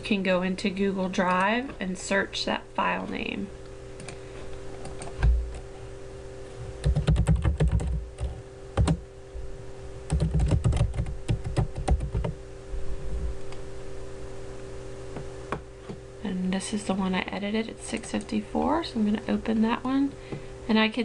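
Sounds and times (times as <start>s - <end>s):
steady low hum: 0.0s - 21.0s
typing on computer keyboard: 6.8s - 9.0s, 10.1s - 12.4s.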